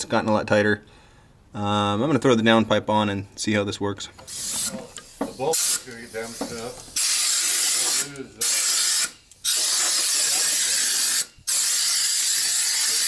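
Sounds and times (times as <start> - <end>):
pneumatic air ratchet: 4.2 - 13.0.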